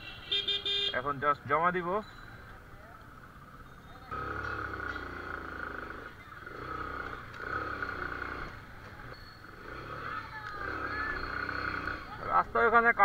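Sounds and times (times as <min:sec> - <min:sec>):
motorcycle engine running: 0:03.0 - 0:12.9.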